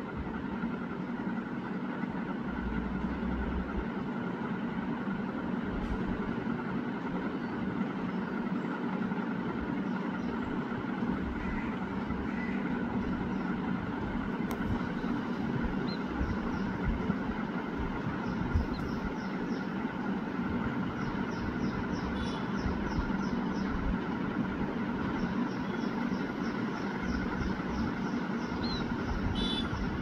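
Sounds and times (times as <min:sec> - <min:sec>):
distant traffic rumble: 0:00.0 - 0:30.0
faint bird chirps: 0:20.9 - 0:23.8, 0:25.0 - 0:30.0.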